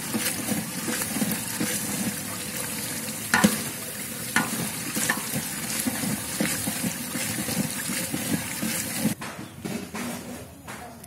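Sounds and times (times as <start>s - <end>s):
liquid sloshing in a pot: 0.0s - 9.2s
ladle knocking against pot: 3.3s - 3.8s, 4.4s - 9.2s.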